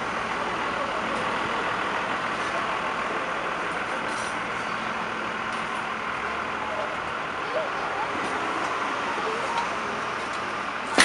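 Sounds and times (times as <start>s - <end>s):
city street noise: 0.0s - 11.0s
heavy vehicle engine running: 0.0s - 11.0s.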